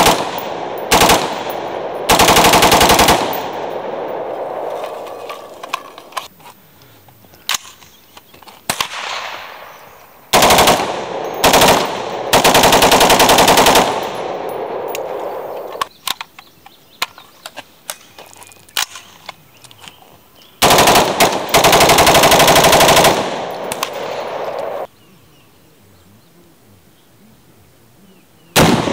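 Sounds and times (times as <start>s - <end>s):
gunshot echo: 0.0s - 5.6s, 8.7s - 9.8s, 28.6s - 28.9s
rifle firing in rapid bursts: 0.0s - 6.0s, 10.3s - 15.8s, 20.6s - 24.9s, 28.6s - 28.9s.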